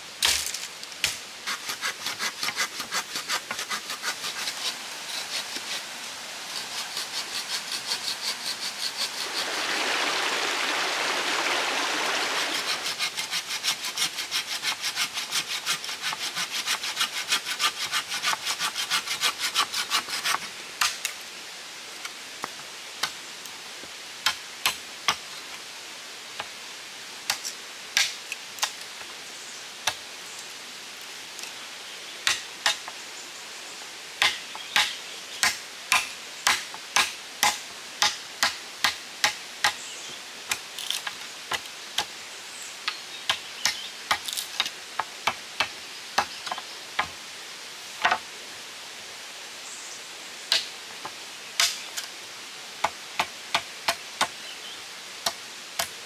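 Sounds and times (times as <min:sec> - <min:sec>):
sharp knocks on bamboo: 0:00.2 - 0:01.2, 0:32.2 - 0:32.8, 0:34.2 - 0:39.8, 0:48.0 - 0:48.2
machete chopping bamboo: 0:00.2 - 0:04.4, 0:34.2 - 0:39.8
hand saw cutting bamboo: 0:00.2 - 0:05.9, 0:06.5 - 0:09.4, 0:12.4 - 0:21.0.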